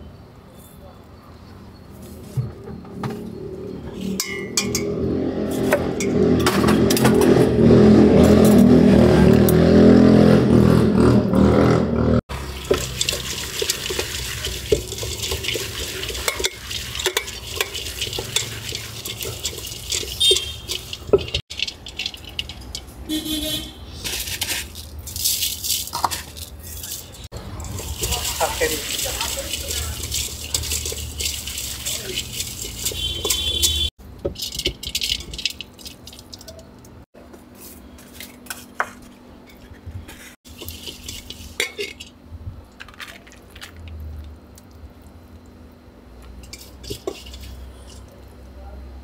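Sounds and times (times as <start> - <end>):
hands tossing food in a steel bowl: 12.3 - 23.3, 23.9 - 39.1, 40.1 - 42.1, 46.3 - 48.2.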